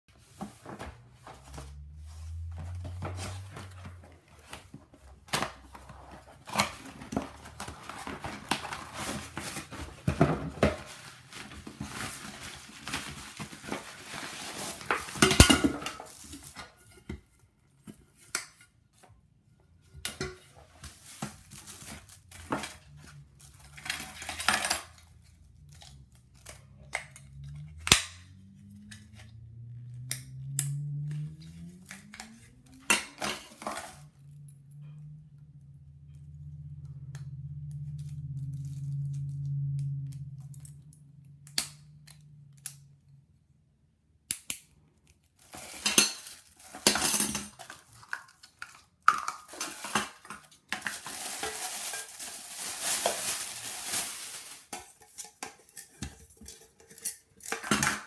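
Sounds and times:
packaging rustling: 0.2 - 16.7, 20.7 - 26.8, 45.3 - 58.0.

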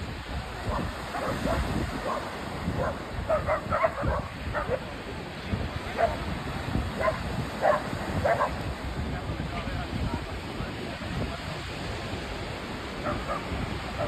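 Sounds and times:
surf: 0.0 - 14.0
wind: 0.0 - 14.0
dogs barking: 0.6 - 5.0, 5.9 - 8.7, 13.0 - 14.0.

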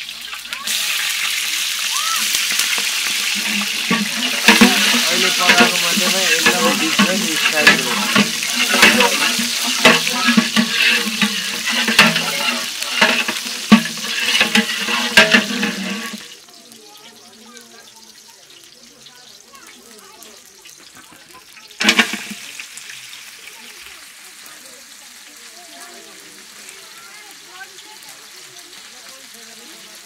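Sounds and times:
water sloshing in a pot: 0.0 - 16.4, 21.7 - 23.1
ladle knocking against a pot: 2.4 - 16.2.

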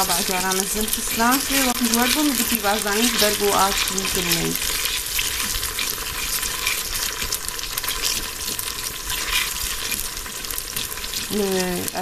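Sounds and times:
onions sizzling in oil: 0.0 - 12.0.

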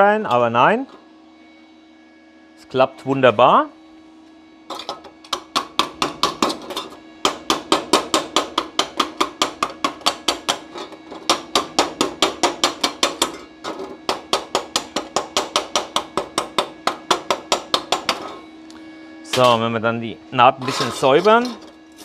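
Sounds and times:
steady hum: 0.0 - 22.0
rapid metallic strikes on steel: 5.3 - 18.4.

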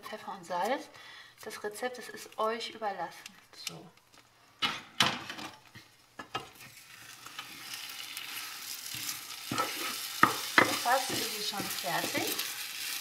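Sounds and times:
spatula stirring in pan: 6.4 - 13.0
egg sizzling in butter: 6.5 - 13.0.

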